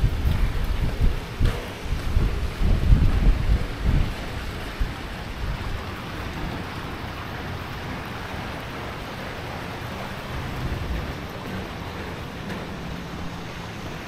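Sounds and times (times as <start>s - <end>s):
fountain jets splashing: 0.0s - 14.0s
wind rumbling on microphone: 0.0s - 14.0s.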